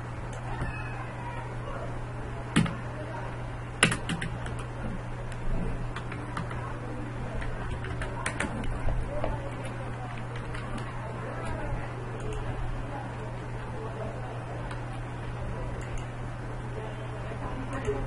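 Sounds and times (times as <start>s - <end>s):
steady low hum: 0.0s - 18.0s
computer keyboard typing: 2.6s - 2.8s, 3.8s - 4.7s, 5.9s - 6.7s, 7.3s - 12.5s.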